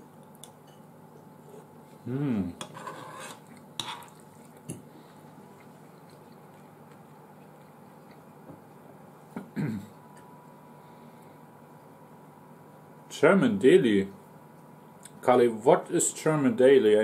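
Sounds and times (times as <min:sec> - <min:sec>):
person humming: 0:02.0 - 0:02.6.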